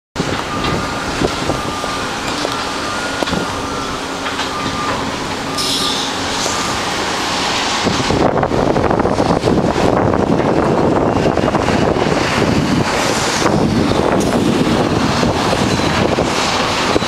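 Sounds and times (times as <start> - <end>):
diesel engine running: 0.2 - 17.0
thin high whine: 0.3 - 8.2.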